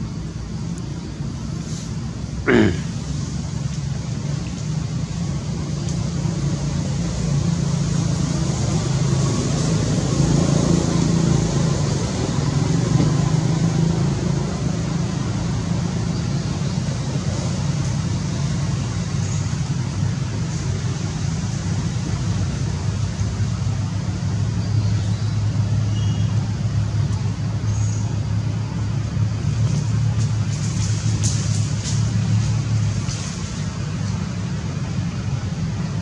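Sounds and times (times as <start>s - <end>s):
even hiss: 0.0s - 6.0s.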